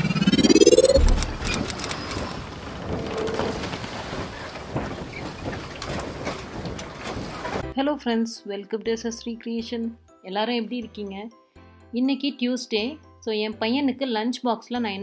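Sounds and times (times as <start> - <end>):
rising whoosh: 0.0 - 2.4
deep boom: 0.3 - 1.5.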